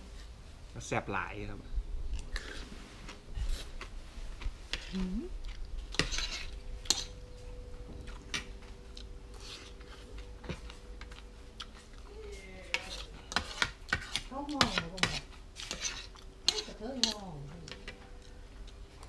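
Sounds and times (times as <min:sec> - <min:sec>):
faint steady hum: 0:00.0 - 0:19.0
cutlery clinking and scraping on plate: 0:05.9 - 0:07.2, 0:12.7 - 0:18.2.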